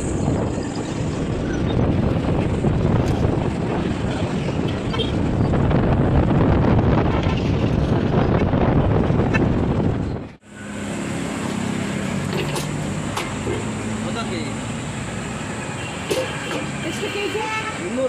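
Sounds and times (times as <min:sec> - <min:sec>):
wind buffeting microphone: 0:00.0 - 0:10.4
road noise: 0:00.0 - 0:18.0.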